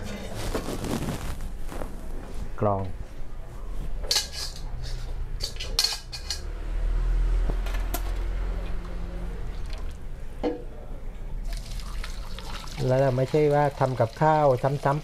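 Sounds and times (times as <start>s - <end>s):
metal pots and bowls clinking: 4.0s - 6.5s.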